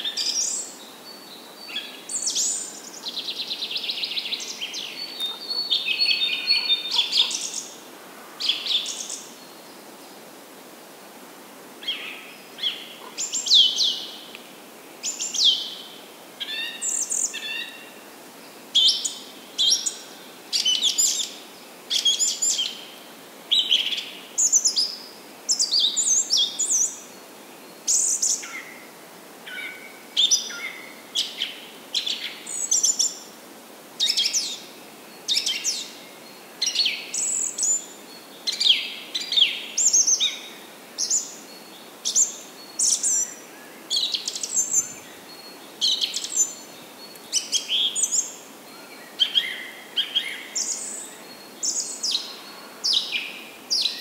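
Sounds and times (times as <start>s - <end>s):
small birds chirping: 0.0s - 7.8s, 11.8s - 14.4s, 34.0s - 54.0s.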